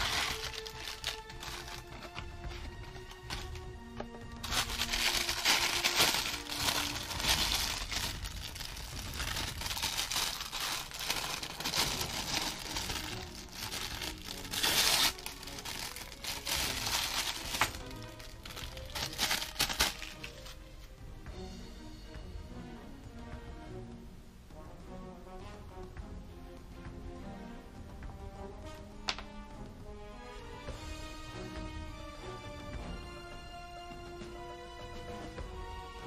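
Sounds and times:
plastic wrapper crinkling: 0:00.0 - 0:20.6
quiet background music: 0:00.0 - 0:36.0.

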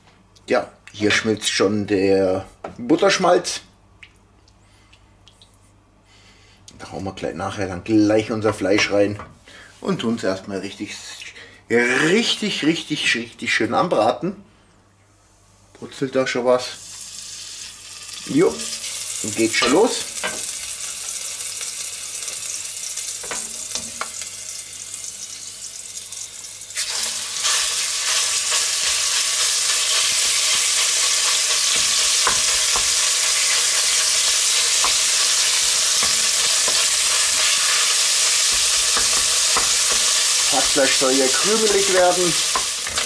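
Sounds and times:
butter sizzling lightly: 0:16.8 - 0:43.0
meat frying sizzle: 0:16.8 - 0:43.0
wooden spoon knocking pot: 0:31.7 - 0:33.0, 0:35.9 - 0:36.9, 0:38.4 - 0:40.9.

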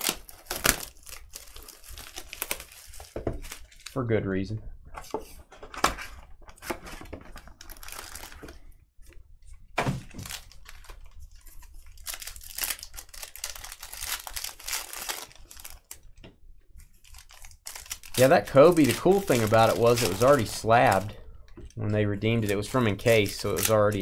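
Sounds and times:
card wrapping tearing and crinkling: 0:00.0 - 0:04.0, 0:05.8 - 0:08.6, 0:09.8 - 0:16.1, 0:16.9 - 0:21.2, 0:22.3 - 0:24.0.

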